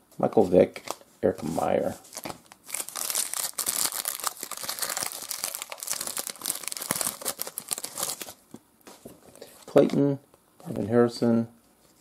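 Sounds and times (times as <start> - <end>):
foil wrapper tearing and crinkling: 2.1 - 8.4.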